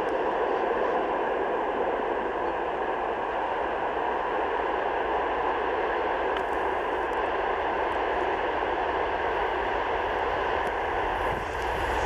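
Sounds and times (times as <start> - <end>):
diesel locomotive engine and wheels: 0.0 - 12.0.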